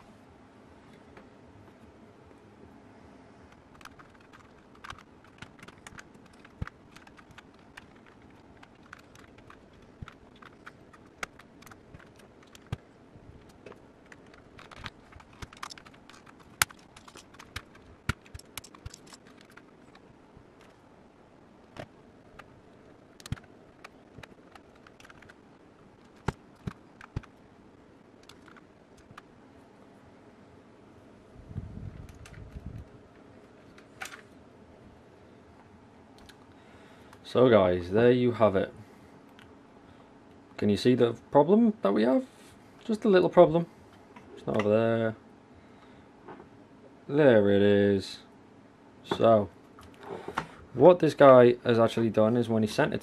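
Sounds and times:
plastic keycaps clicking: 3.7 - 12.8, 13.4 - 20.0, 23.1 - 25.4, 26.0 - 27.3, 28.2 - 29.3.

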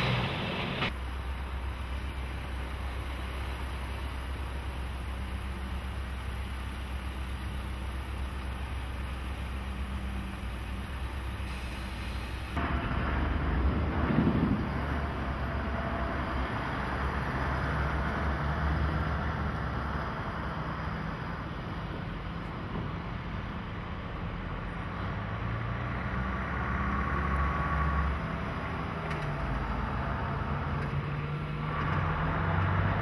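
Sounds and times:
yard tractor hauling container past: 0.0 - 23.6
diesel truck idling: 0.0 - 24.9.

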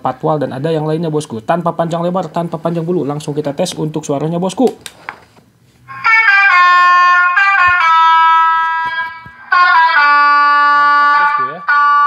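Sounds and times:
bus horn playing melody: 5.9 - 12.0.

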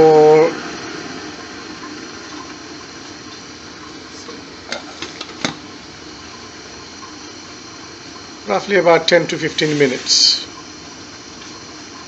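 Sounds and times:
gas burner hissing: 0.0 - 12.0.

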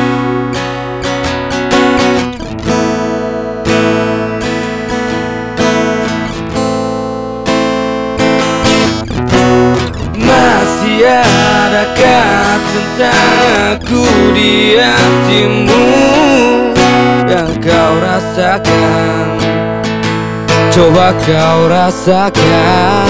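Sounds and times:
acoustic guitar strumming chords: 0.0 - 23.0
man singing: 9.9 - 19.8, 20.5 - 23.0.

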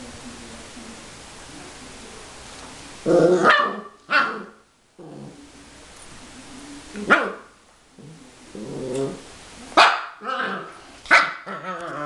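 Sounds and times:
puppy barking: 3.4 - 4.6, 7.0 - 7.5, 9.8 - 12.0.

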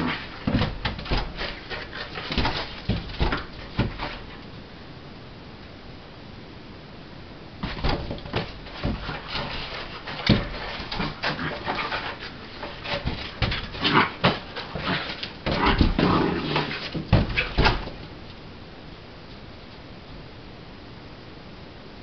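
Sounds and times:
puppy scrabbling on tile floor: 0.0 - 4.5, 7.6 - 18.4.

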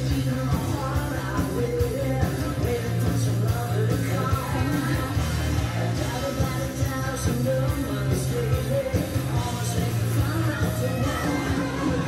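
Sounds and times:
rock music from loudspeakers: 0.0 - 12.0.

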